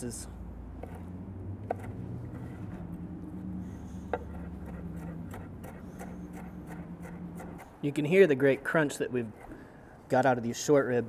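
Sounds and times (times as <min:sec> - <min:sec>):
low steady hum: 0:00.0 - 0:10.1
knife chopping on wooden board: 0:01.6 - 0:02.0, 0:04.0 - 0:07.7.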